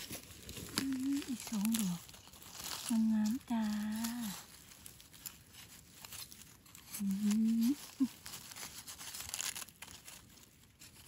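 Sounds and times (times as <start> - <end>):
leaf litter crackling and rustling: 0.0 - 11.0
person humming: 0.7 - 2.0, 7.0 - 8.2.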